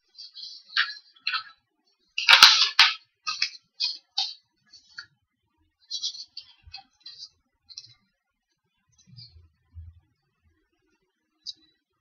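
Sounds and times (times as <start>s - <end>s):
paper rustling: 2.2s - 4.4s.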